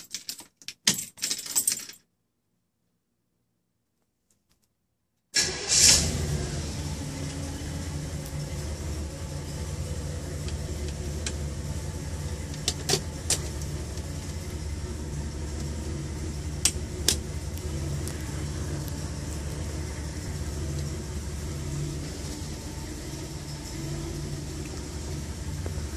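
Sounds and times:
car engine starting and idling: 5.4s - 25.9s.

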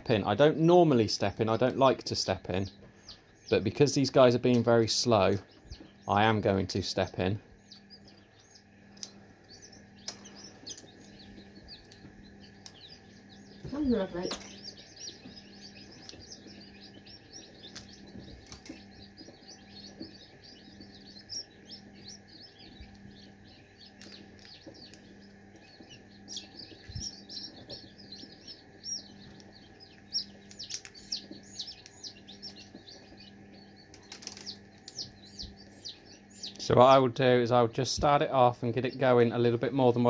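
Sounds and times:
chicks peeping: 0.0s - 40.0s
eggshell clicks: 8.9s - 9.2s, 29.3s - 32.6s.

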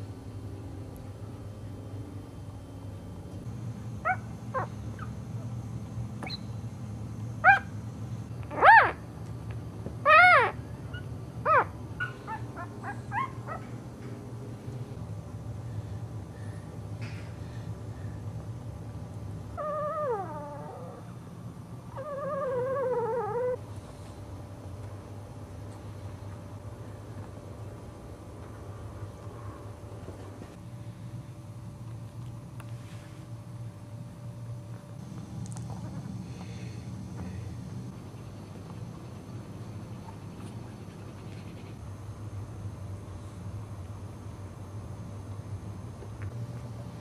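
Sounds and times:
steady low hum: 0.0s - 47.0s
puppy whining: 4.0s - 5.2s, 8.5s - 9.0s, 10.0s - 13.7s, 19.6s - 21.2s, 21.9s - 23.6s
puppy whimpering: 10.1s - 10.6s, 19.6s - 21.0s, 22.0s - 23.6s.

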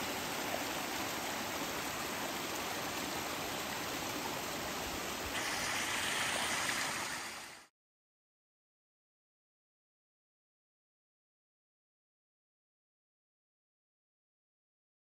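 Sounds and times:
stream splashing over rocks: 0.0s - 7.7s.

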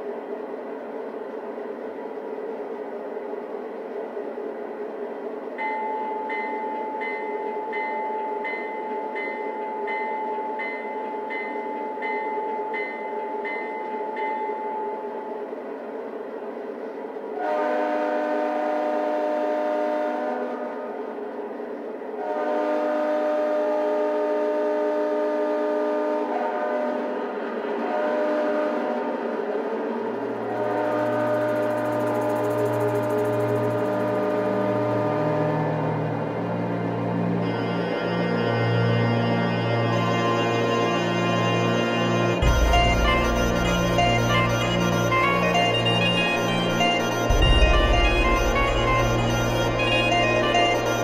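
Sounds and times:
locomotive bell ringing: 5.6s - 15.5s, 30.6s - 34.7s, 37.4s - 51.0s
multi-chime horn blasts: 37.4s - 51.0s.

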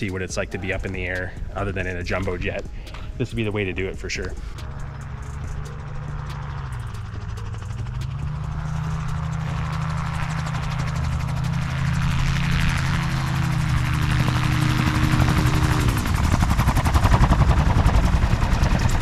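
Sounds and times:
gyrocopter engine and propeller: 0.0s - 19.0s
rhythmic rotor chop: 0.0s - 19.0s.

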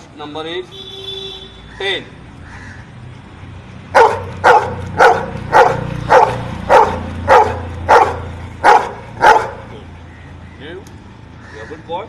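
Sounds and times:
dog barking: 3.9s - 9.7s.

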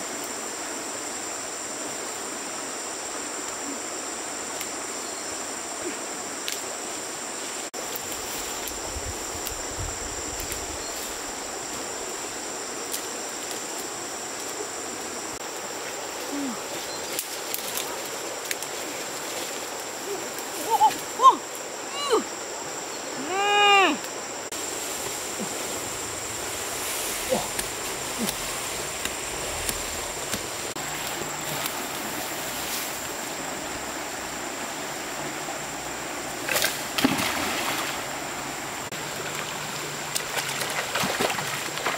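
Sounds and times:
insect drone: 0.0s - 41.9s
stream water flowing: 0.0s - 41.9s.

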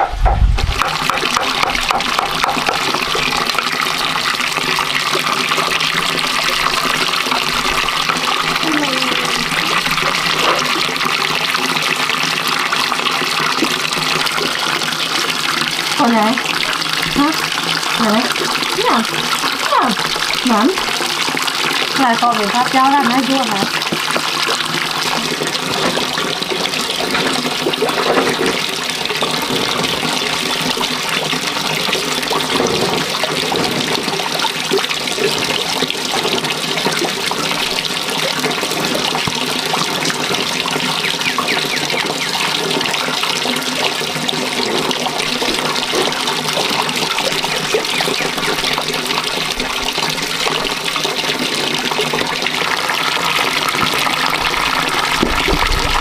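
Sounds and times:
water pouring into plastic basin: 0.4s - 56.0s.

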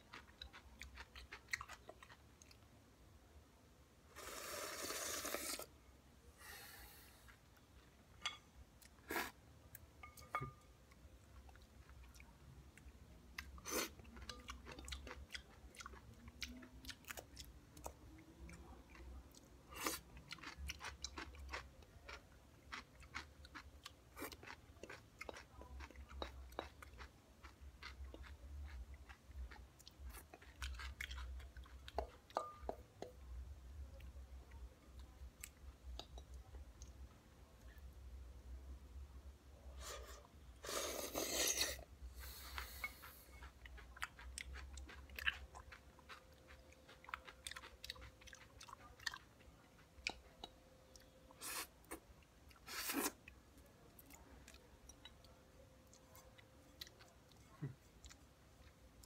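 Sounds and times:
chewing and crunching: 0.0s - 2.7s, 11.3s - 32.7s, 42.3s - 59.0s
loud slurp: 4.1s - 5.7s.

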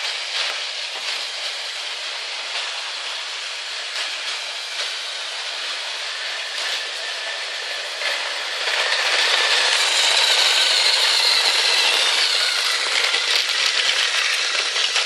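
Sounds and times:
toy train motors whirring: 0.0s - 15.0s
plastic wheels clicking: 6.3s - 15.0s.

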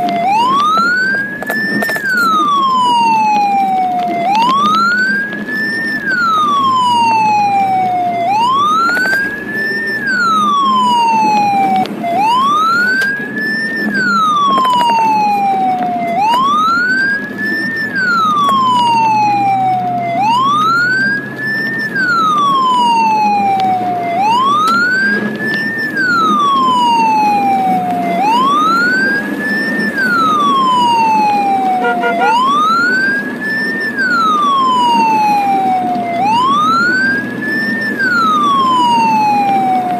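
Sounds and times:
ambulance siren wailing: 0.0s - 39.9s
engine and road rumble: 0.0s - 39.9s.

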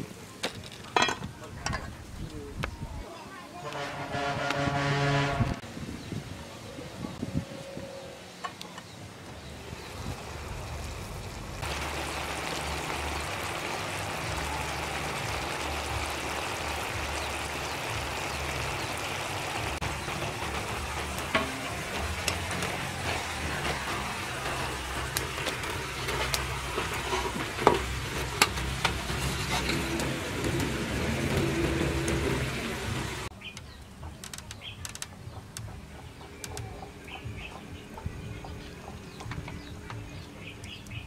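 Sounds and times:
metal tongs clanking on pot: 21.0s - 30.7s.

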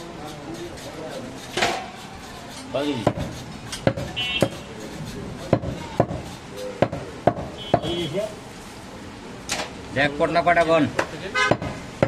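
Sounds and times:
cleaver chopping meat: 0.2s - 7.9s, 11.0s - 12.0s.

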